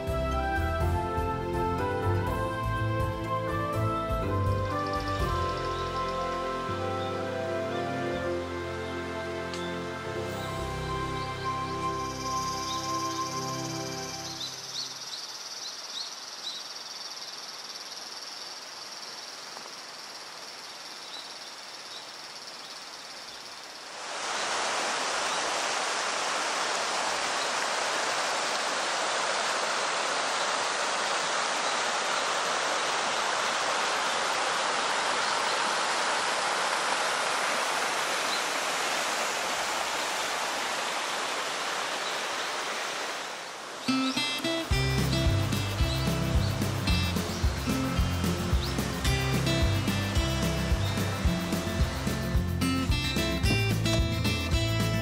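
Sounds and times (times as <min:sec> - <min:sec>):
river water rushing: 0:03.2 - 0:16.6, 0:23.1 - 0:55.0
insect chirring: 0:14.7 - 0:24.0.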